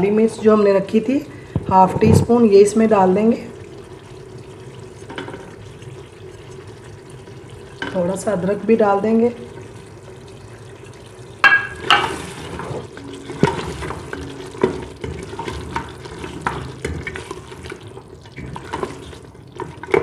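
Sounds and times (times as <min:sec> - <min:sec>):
low sizzle of frying: 0:00.0 - 0:20.0
spoon knocking against pot: 0:11.4 - 0:12.2
wooden spoon scraping pot: 0:11.6 - 0:20.0.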